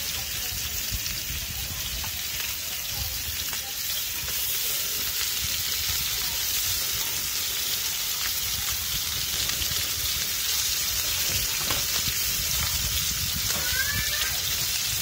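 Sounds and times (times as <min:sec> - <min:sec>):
fish sizzling in a pot: 0:00.0 - 0:15.0.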